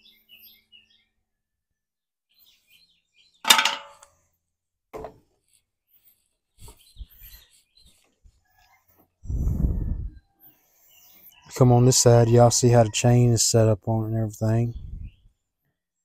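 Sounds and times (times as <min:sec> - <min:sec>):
sharp metal clang: 0:03.5 - 0:04.1.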